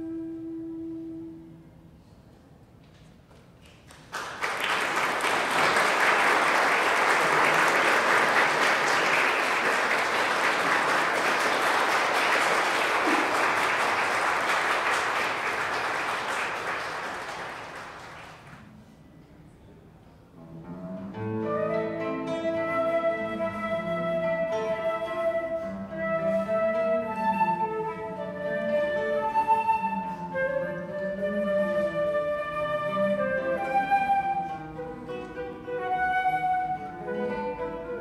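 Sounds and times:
audience applauding: 0:03.6 - 0:18.7.

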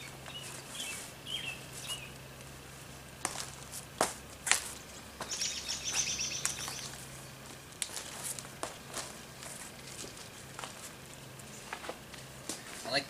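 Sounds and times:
songbird chirping and trilling: 0:00.0 - 0:02.2, 0:04.9 - 0:07.4
steady low hum: 0:00.0 - 0:13.0.

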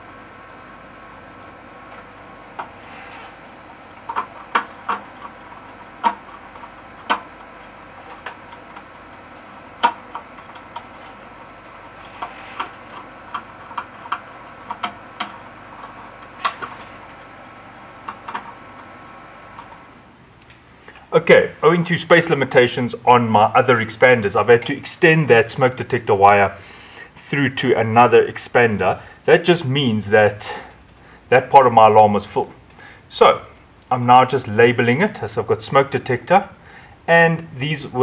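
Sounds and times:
steady background hiss: 0:00.0 - 0:38.0.

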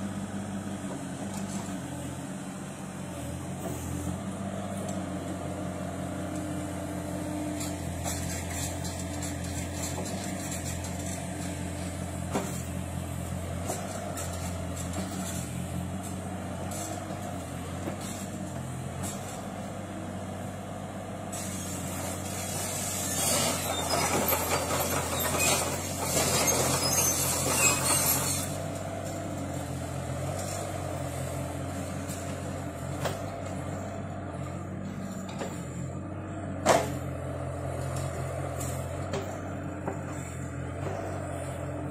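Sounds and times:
diesel engine running: 0:00.0 - 0:41.9
hydraulic hiss and rattle: 0:07.4 - 0:19.5, 0:21.1 - 0:35.9.

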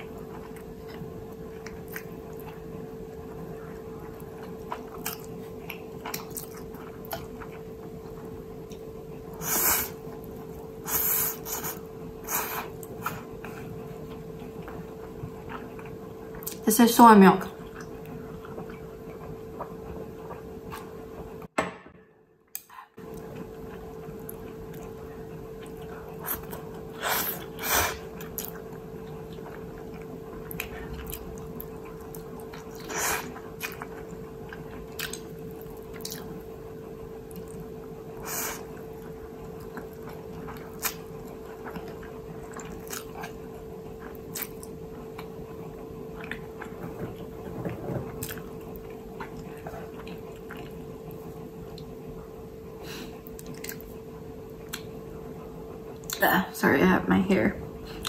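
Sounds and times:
steady low hum: 0:00.0 - 0:58.0
person chewing and slurping noodles: 0:04.0 - 0:16.6, 0:17.6 - 0:21.4, 0:22.6 - 0:36.5, 0:37.2 - 0:52.0.

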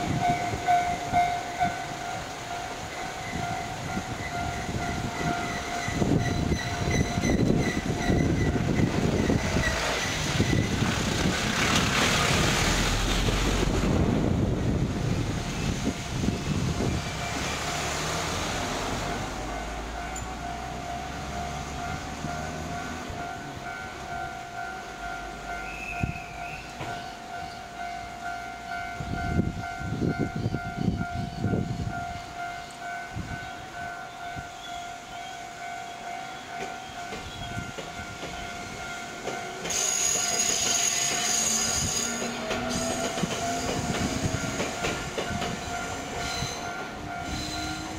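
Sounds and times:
train wheels rushing: 0:00.0 - 0:27.5, 0:36.4 - 0:47.9
train wheels squealing: 0:03.0 - 0:11.0, 0:25.5 - 0:28.0, 0:33.4 - 0:47.9
vehicles driving over crossing: 0:07.4 - 0:25.9.

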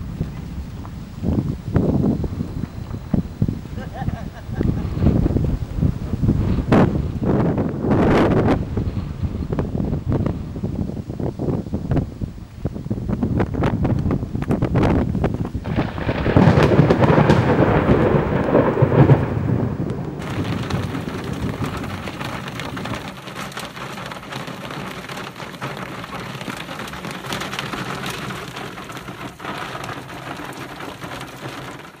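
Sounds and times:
rain falling: 0:00.0 - 0:32.0
thunder rumbling: 0:00.0 - 0:32.0
raindrop ticks: 0:13.1 - 0:32.0.

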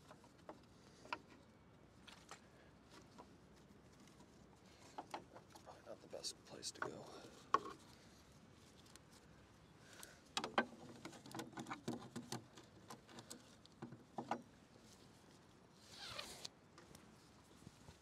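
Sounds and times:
strap swishing through buckle: 0:15.8 - 0:16.5
strap webbing rubbing: 0:15.8 - 0:16.5.

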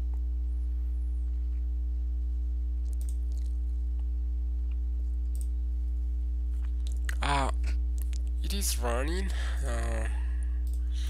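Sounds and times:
low electrical hum: 0:00.0 - 0:11.0
computer mouse clicks: 0:02.9 - 0:03.5, 0:05.2 - 0:05.5.

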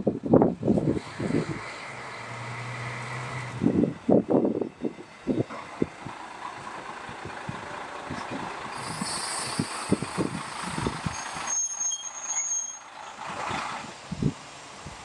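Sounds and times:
diesel railcar running: 0:00.0 - 0:15.0
air hiss: 0:08.7 - 0:10.6
high steady squeal: 0:08.7 - 0:13.0.

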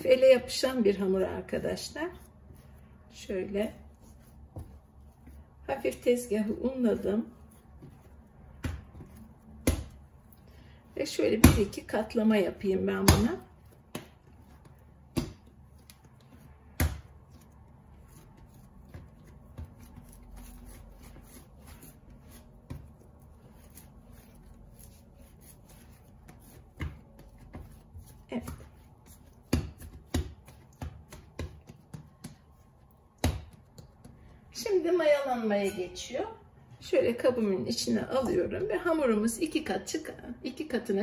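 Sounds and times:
dough thumping on countertop: 0:04.5 - 0:05.9, 0:07.4 - 0:10.1, 0:11.2 - 0:23.0, 0:25.9 - 0:34.4.

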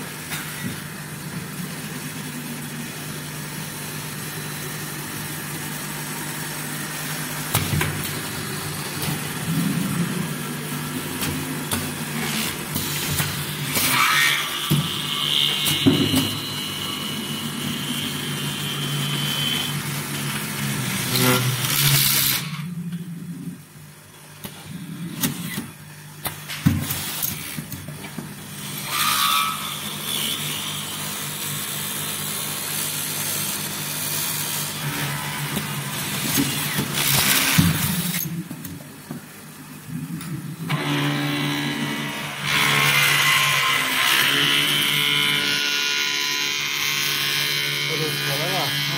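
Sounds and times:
machine low hum: 0:00.0 - 0:13.8.

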